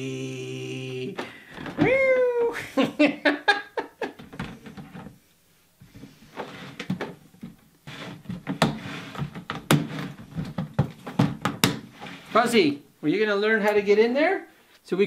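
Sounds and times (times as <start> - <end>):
plastic lid rattling and knocking: 8.2 - 11.8.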